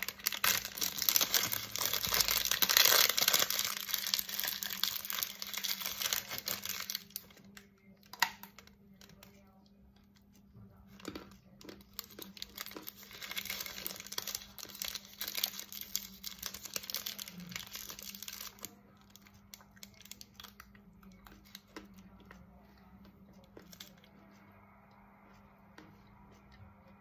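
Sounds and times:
foil wrapper crinkling and tearing: 0:00.0 - 0:09.3, 0:11.0 - 0:21.8.

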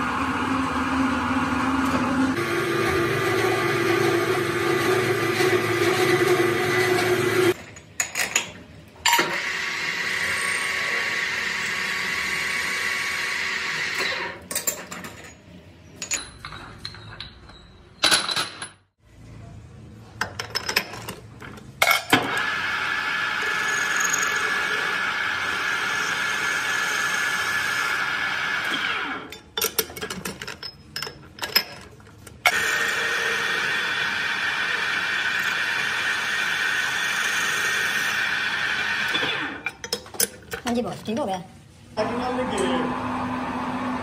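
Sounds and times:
metal lathe running: 0:00.0 - 0:07.6.

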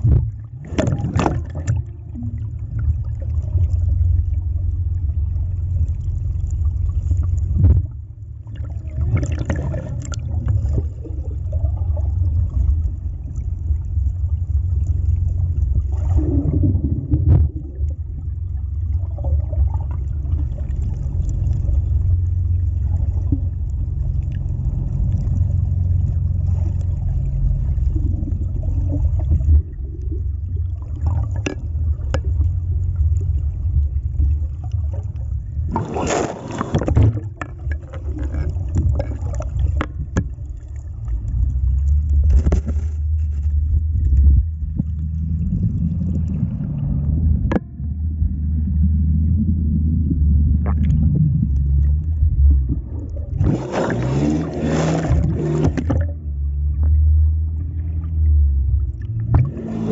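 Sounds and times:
muffled underwater rumble: 0:00.0 - 0:59.9.

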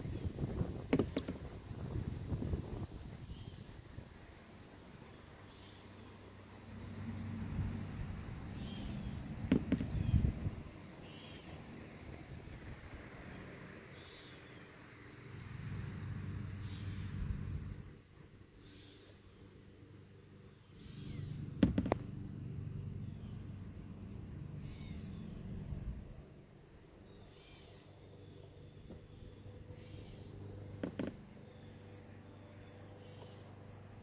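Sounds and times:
insect chorus drone: 0:00.0 - 0:34.0
sharp knocks: 0:00.9 - 0:01.4, 0:09.5 - 0:10.0, 0:21.6 - 0:22.1, 0:30.8 - 0:31.2.

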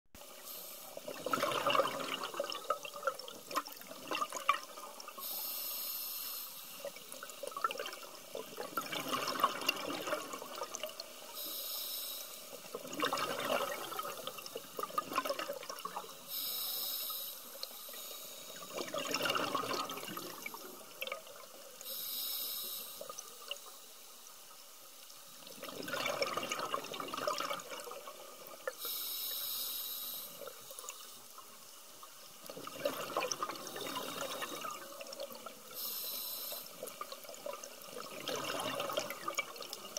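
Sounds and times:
regulator inhale hiss: 0:00.4 - 0:01.0, 0:05.2 - 0:06.9, 0:11.4 - 0:12.6, 0:16.1 - 0:18.8, 0:21.8 - 0:24.0, 0:28.8 - 0:31.3, 0:33.6 - 0:35.0, 0:35.7 - 0:36.9
exhaled bubbles rushing: 0:01.0 - 0:05.2, 0:07.0 - 0:11.0, 0:12.6 - 0:16.0, 0:18.6 - 0:21.6, 0:25.5 - 0:28.7, 0:32.4 - 0:35.7, 0:36.8 - 0:39.9.

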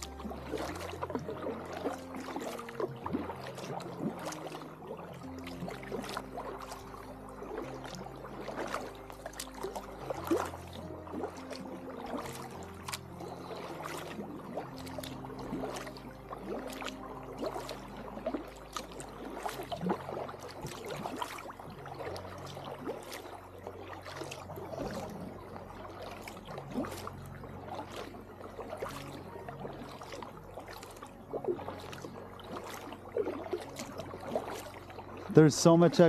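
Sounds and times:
paddle stroking through water: 0:00.0 - 0:36.0
water dripping from paddle: 0:00.0 - 0:36.0.

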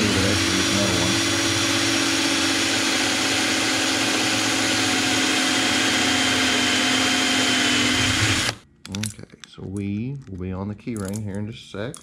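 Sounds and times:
cordless drill boring: 0:00.0 - 0:08.6.

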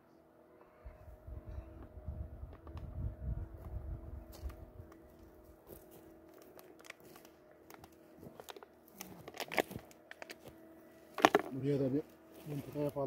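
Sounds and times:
faint steady hum: 0:00.0 - 0:13.0
crunching and crackling clicks: 0:04.3 - 0:11.5.

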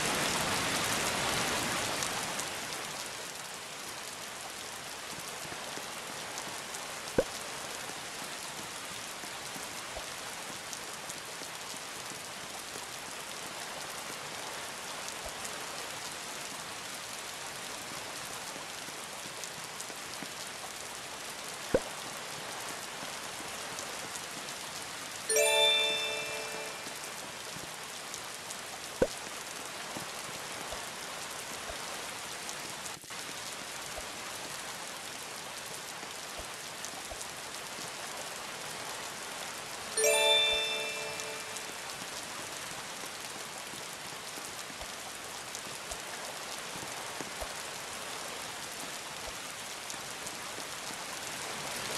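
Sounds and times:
steady rain hissing: 0:00.0 - 0:51.9
bell-like chime: 0:25.3 - 0:27.3, 0:40.0 - 0:42.0.

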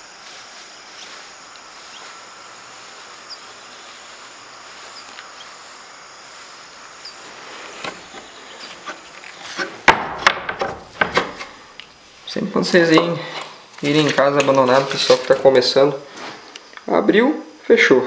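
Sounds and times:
insects humming: 0:00.0 - 0:18.0
faint high chirps: 0:01.8 - 0:05.7, 0:06.6 - 0:07.2.

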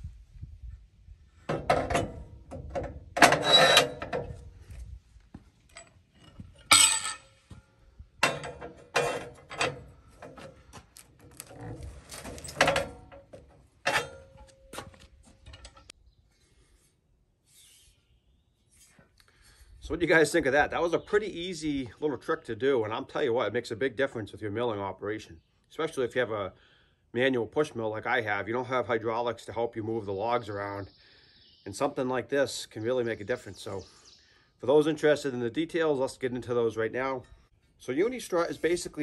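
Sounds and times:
metal clanks and scrapes: 0:01.4 - 0:04.5, 0:05.7 - 0:07.6, 0:08.2 - 0:15.9.

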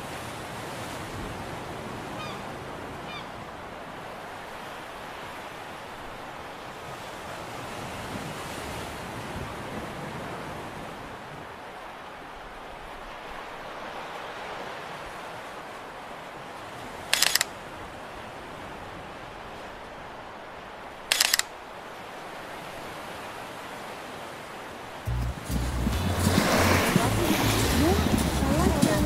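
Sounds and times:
wind: 0:00.0 - 0:29.0
surf rushing: 0:03.9 - 0:29.0.

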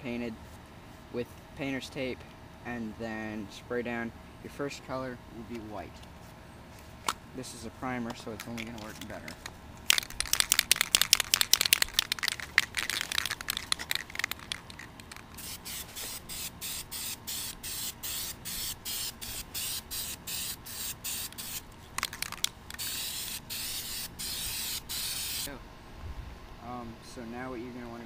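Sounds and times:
aerosol spray can hissing: 0:10.8 - 0:25.5.

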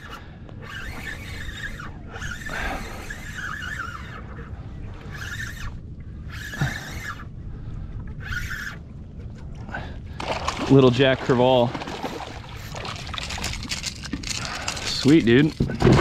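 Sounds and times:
spinning reel whirring: 0:00.0 - 0:07.3, 0:08.2 - 0:08.8, 0:12.0 - 0:15.8
low rumble of wind and water: 0:00.0 - 0:16.0.

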